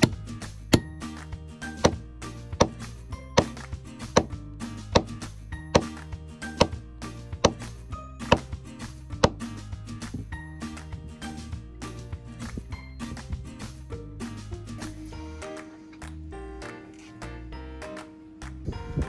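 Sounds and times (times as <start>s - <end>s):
background music: 0.0s - 19.0s
hammer striking metal spike: 1.8s - 2.0s, 4.2s - 6.8s, 7.4s - 8.6s, 9.2s - 9.4s.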